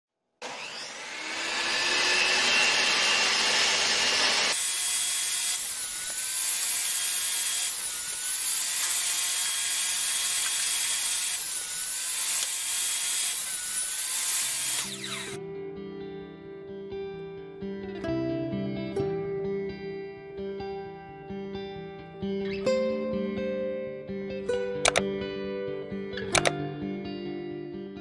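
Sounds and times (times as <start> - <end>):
table saw cutting plywood: 0.4 - 15.4.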